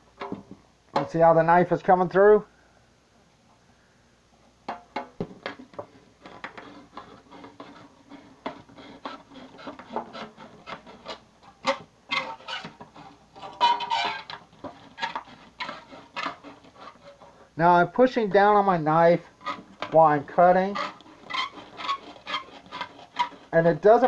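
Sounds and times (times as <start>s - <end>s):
knife scraping tin: 5.4s - 17.4s, 19.4s - 24.0s.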